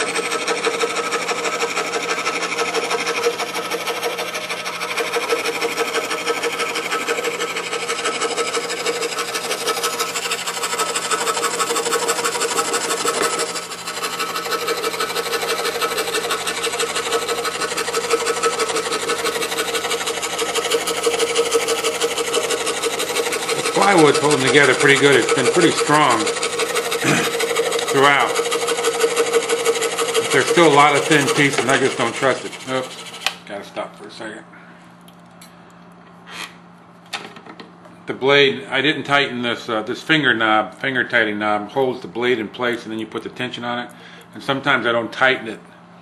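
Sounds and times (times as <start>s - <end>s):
scroll saw buzzing through wood: 0.0s - 33.4s.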